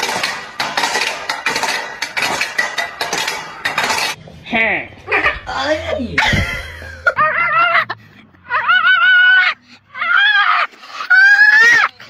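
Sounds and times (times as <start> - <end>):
dog howling: 7.1 - 12.0.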